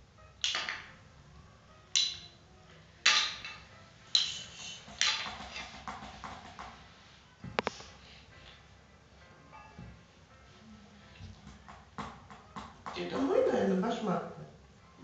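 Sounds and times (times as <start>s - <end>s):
hand cymbals clashing: 4.1s - 5.2s.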